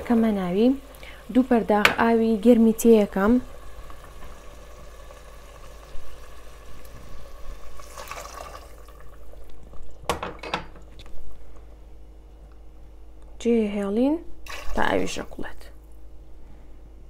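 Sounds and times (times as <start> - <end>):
water pouring into a pot: 2.8 - 10.0, 14.4 - 15.2.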